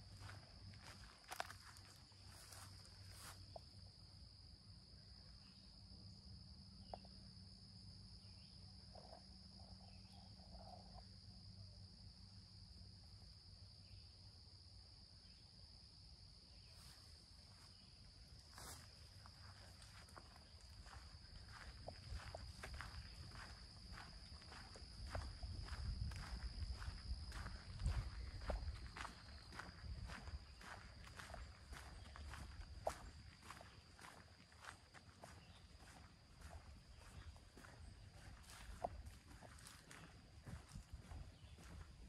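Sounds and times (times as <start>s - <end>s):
footsteps on dirt path: 0.0s - 3.8s, 17.7s - 42.0s.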